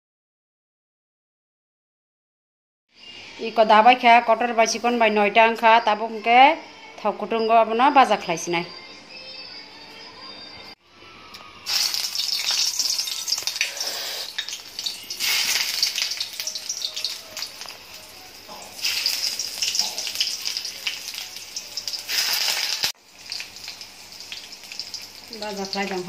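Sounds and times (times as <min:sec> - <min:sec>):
vegetables sizzling in hot oil: 0:11.6 - 0:26.0.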